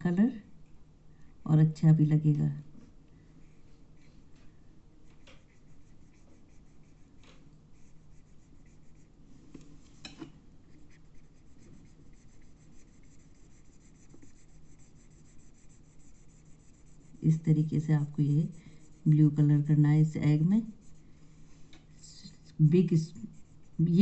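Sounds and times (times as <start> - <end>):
felt-tip pen scratching on paper: 5.2 - 7.2, 7.8 - 9.2, 10.7 - 21.2, 22.0 - 24.0.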